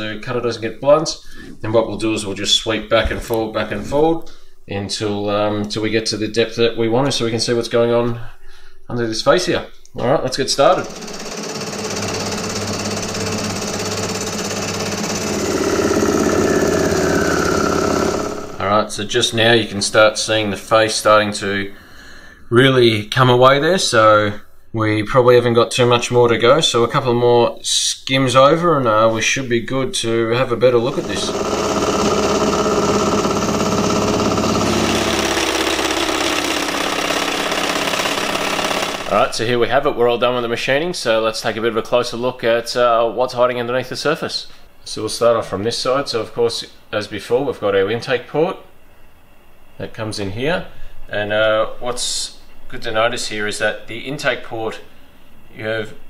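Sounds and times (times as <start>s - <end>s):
spindle hum: 10.0s - 19.2s, 30.4s - 39.4s
milling machine cutting metal: 10.6s - 18.6s, 30.7s - 39.2s.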